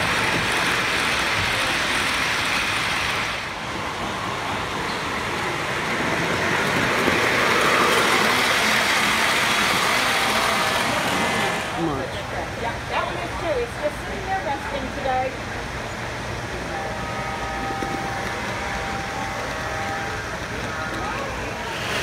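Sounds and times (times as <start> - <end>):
model train wheels clattering on rails: 0.0 - 3.4, 4.6 - 11.6.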